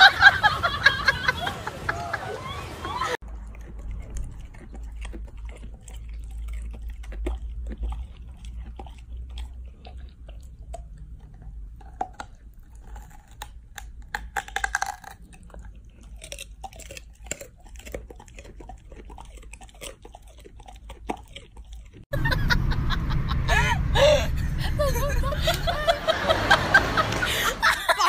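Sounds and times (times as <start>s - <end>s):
dog chewing crunchily: 3.2s - 22.2s.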